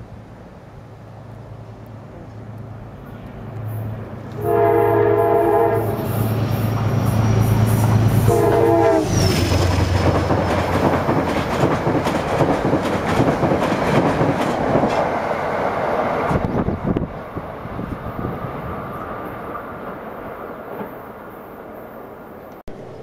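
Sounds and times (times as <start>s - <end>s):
train coaches rumbling past: 0.0s - 23.0s
train horn blasts: 4.3s - 6.3s, 8.1s - 9.5s
wheel clatter on rails: 9.4s - 15.2s.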